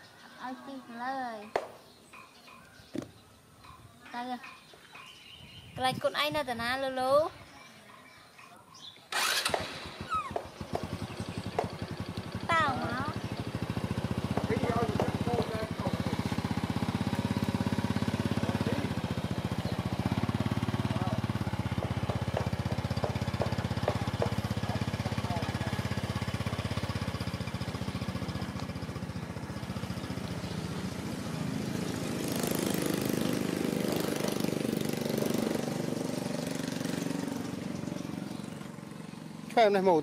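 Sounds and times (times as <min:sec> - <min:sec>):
motorbike engine idling and riding off: 0:08.8 - 0:40.0.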